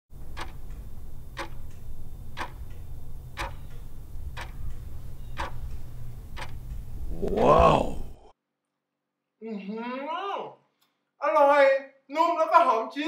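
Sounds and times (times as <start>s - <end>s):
clock ticking: 0.2s - 7.0s
low steady hum: 0.2s - 8.2s.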